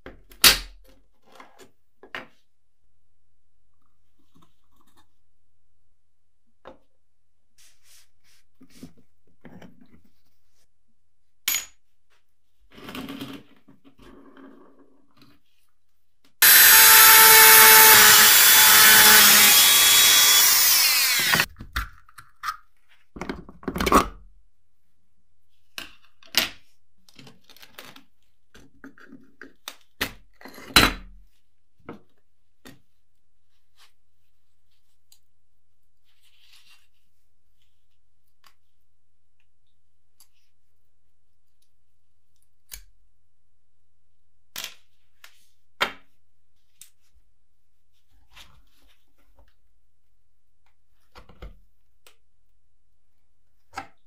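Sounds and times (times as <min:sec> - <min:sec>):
power tool running: 0:16.4 - 0:21.5.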